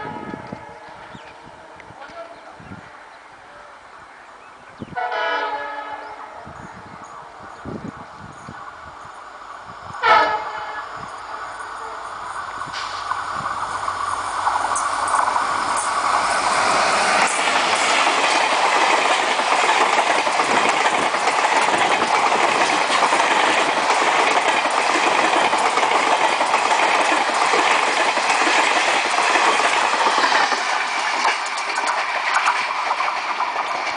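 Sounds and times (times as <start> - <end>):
passenger train passing: 0.0 - 33.9
wheel-on-rail rush: 6.8 - 33.9.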